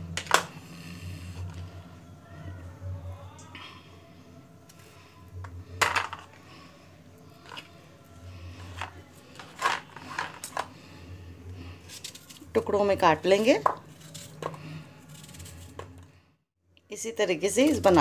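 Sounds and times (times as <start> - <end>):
peeler scraping apple: 13.9 - 15.8.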